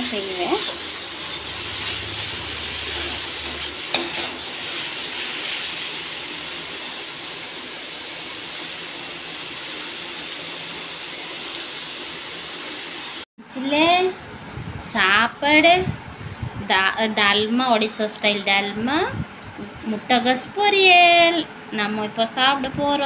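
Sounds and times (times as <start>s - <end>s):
vegetables sizzling in a pan: 0.0s - 13.2s.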